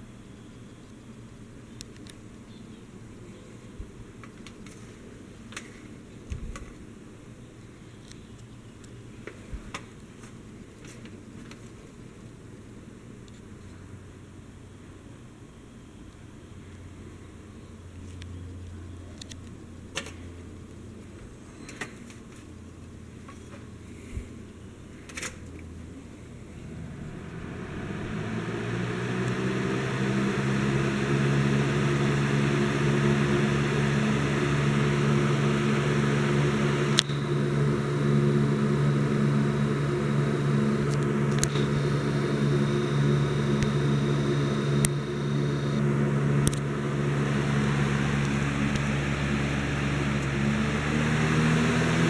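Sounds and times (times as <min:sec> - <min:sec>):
fan rushing air: 0:19.4 - 0:52.0
low motor hum: 0:25.6 - 0:52.0.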